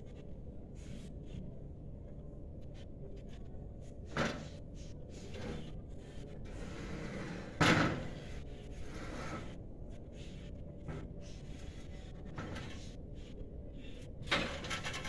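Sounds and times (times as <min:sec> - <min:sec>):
ladder scraping on metal: 0:06.5 - 0:09.6, 0:14.3 - 0:15.0.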